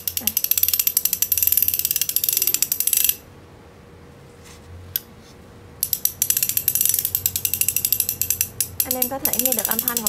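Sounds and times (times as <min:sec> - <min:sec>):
ratchet spanner clicking: 0:00.0 - 0:03.2, 0:05.8 - 0:10.0.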